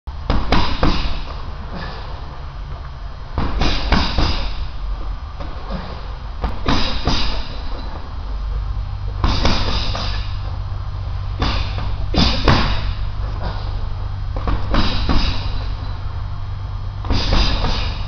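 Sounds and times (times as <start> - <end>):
punches thudding on heavy bag: 0.2 - 1.9, 3.3 - 4.6, 5.4 - 7.8, 9.2 - 10.4, 11.3 - 13.6, 14.3 - 15.8, 17.0 - 18.0.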